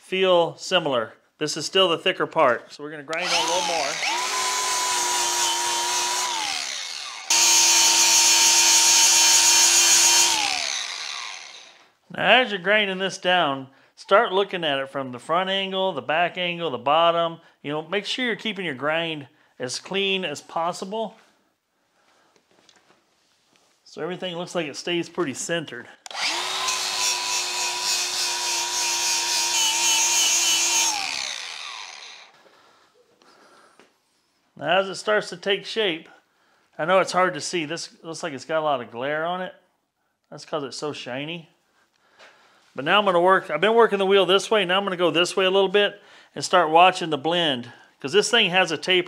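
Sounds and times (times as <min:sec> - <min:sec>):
angle grinder grinding metal: 0:03.1 - 0:11.9, 0:26.1 - 0:32.4.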